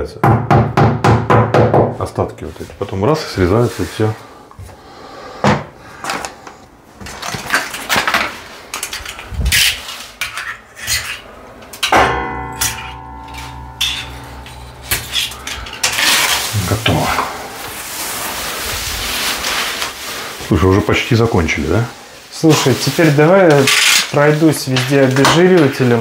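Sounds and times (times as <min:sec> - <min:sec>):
rustling: 0:06.0 - 0:26.0
steady humming tone: 0:11.3 - 0:19.4.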